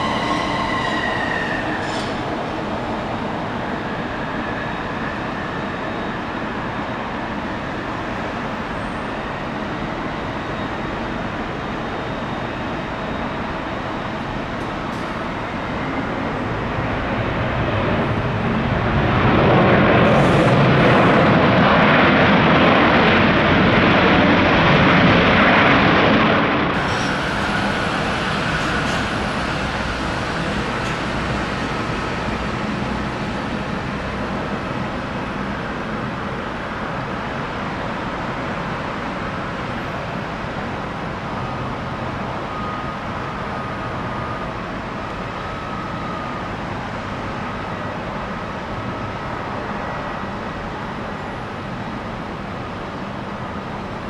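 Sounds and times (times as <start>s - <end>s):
jet engines roaring: 0.0s - 54.0s.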